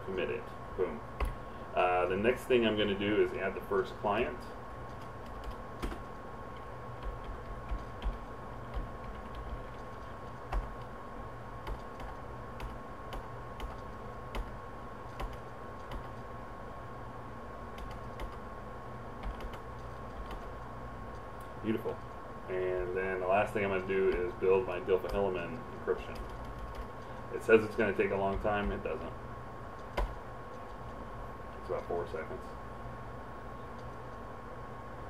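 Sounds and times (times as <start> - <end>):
faint steady whine: 0.0 - 35.0
steady background hum: 0.0 - 35.0
keyboard keys clicking: 4.9 - 10.9, 11.6 - 14.5, 15.1 - 16.2, 17.8 - 18.4, 19.2 - 20.6, 26.1 - 27.0.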